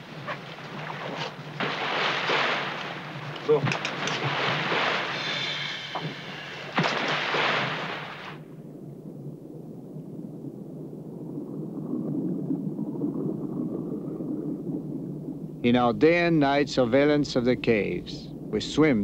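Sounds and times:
water splashing and hissing: 0.0s - 8.4s
loud splash: 0.8s - 8.4s.

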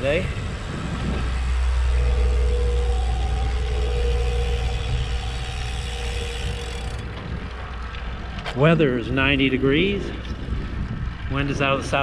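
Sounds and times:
faint steady hum: 0.0s - 8.4s
road noise: 0.0s - 12.0s
wind noise on microphone: 0.0s - 12.0s.

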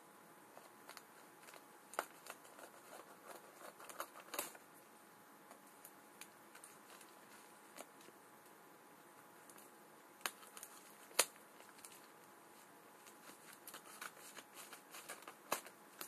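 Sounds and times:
plastic crinkling: 0.6s - 4.6s, 9.4s - 16.0s.

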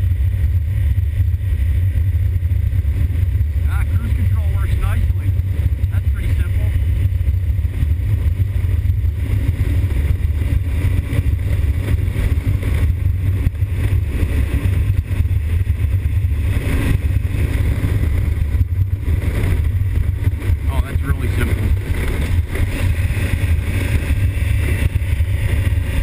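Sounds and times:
motorcycle engine running: 0.0s - 26.0s
wind rumble on microphone: 0.0s - 26.0s.

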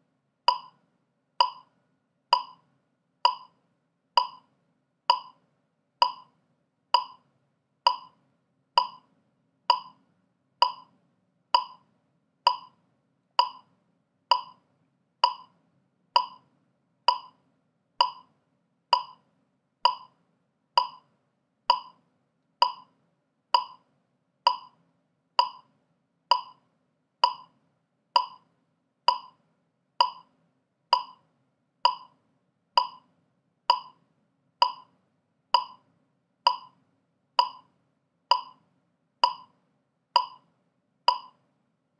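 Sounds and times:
metronome clicks: 0.5s - 0.8s, 1.4s - 1.7s, 2.3s - 2.7s, 3.3s - 3.6s, 4.2s - 4.5s, 5.1s - 5.4s, 6.0s - 6.4s, 7.0s - 7.2s, 7.9s - 8.2s, 8.8s - 9.1s, 9.7s - 10.0s, 10.6s - 10.9s, 11.6s - 11.8s, 12.5s - 12.8s, 13.4s - 13.7s, 14.3s - 14.6s, 15.2s - 15.6s, 16.2s - 16.5s, 17.1s - 17.4s, 18.0s - 18.3s, 18.9s - 19.2s, 19.8s - 20.2s, 20.8s - 21.1s, 21.7s - 22.0s, 22.6s - 22.9s, 23.6s - 23.8s, 24.5s - 24.8s, 25.4s - 25.7s, 26.3s - 26.6s, 27.2s - 27.5s, 28.2s - 28.5s, 29.1s - 29.4s, 30.0s - 30.3s, 30.9s - 31.2s, 31.9s - 32.2s, 32.8s - 33.1s, 33.7s - 34.0s, 34.6s - 34.9s, 35.6s - 35.8s, 36.5s - 36.8s, 37.4s - 37.7s, 38.3s - 38.6s, 39.2s - 39.6s, 40.2s - 40.5s, 41.1s - 41.4s.

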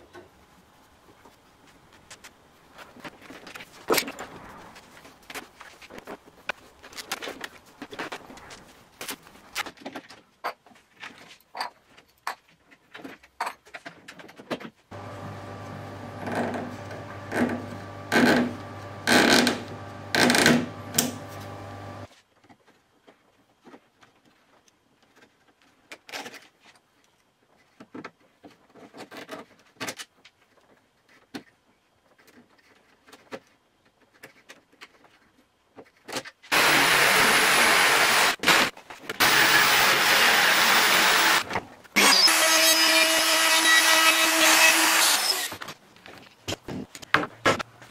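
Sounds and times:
electric jigsaw cutting wood: 14.9s - 22.1s, 36.5s - 45.6s
noisy strokes: 36.5s - 41.4s.

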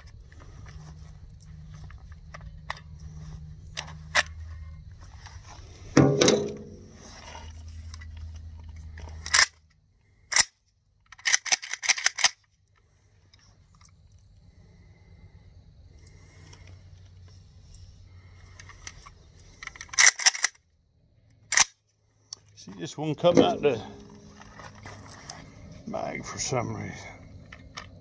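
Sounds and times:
gun action clicking and clacking: 9.1s - 9.6s, 10.3s - 12.5s, 19.6s - 20.6s, 21.5s - 21.8s.

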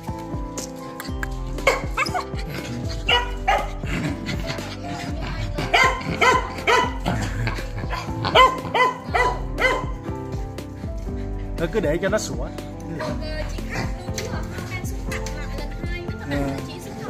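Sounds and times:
background music: 0.0s - 17.0s
small dog barking: 1.6s - 2.2s, 3.1s - 3.8s, 5.7s - 7.1s, 7.9s - 10.0s.

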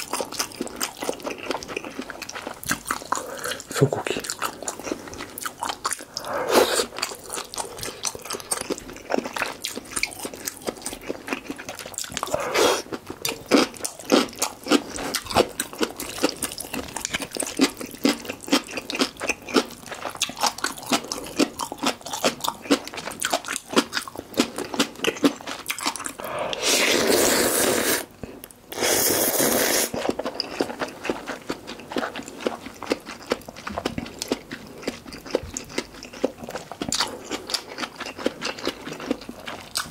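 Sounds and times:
chewing and wet mouth sounds: 0.0s - 39.9s
slurping noodles: 6.0s - 8.0s, 12.2s - 12.9s, 26.2s - 28.1s, 28.7s - 30.2s.

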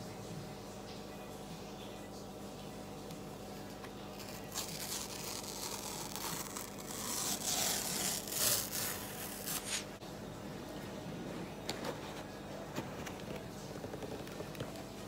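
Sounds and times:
cardboard tear strip ripping: 4.1s - 9.9s.

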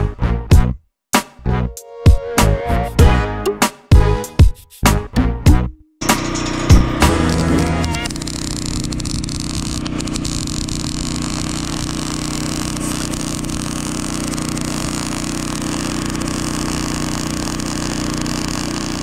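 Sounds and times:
arc welding crackling hiss: 6.0s - 19.0s
low engine drone: 6.0s - 19.0s.

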